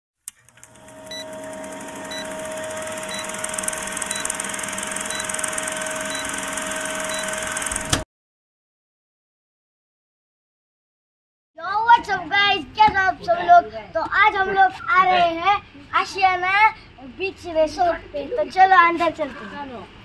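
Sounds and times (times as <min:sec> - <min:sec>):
film projector crackle and hiss: 0:00.3 - 0:08.0
short high beeps: 0:01.1 - 0:01.4, 0:02.1 - 0:07.8
sharp click: 0:07.6 - 0:08.0.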